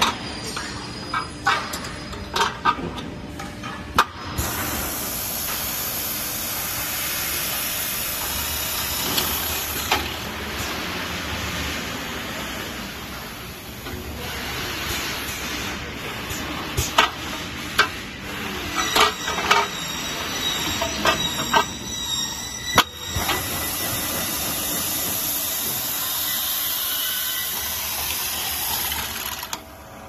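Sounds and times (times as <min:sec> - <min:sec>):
pneumatic drill hiss: 0:04.3 - 0:10.9, 0:14.0 - 0:29.6.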